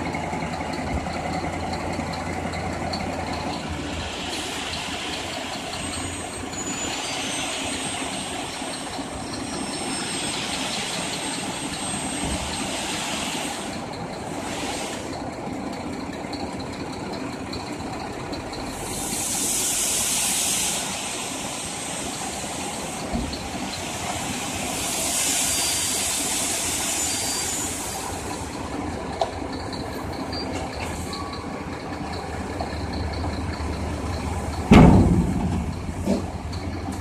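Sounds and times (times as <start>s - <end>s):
diesel engine idling: 0.0s - 37.0s
hiss: 3.9s - 15.2s, 18.7s - 28.7s.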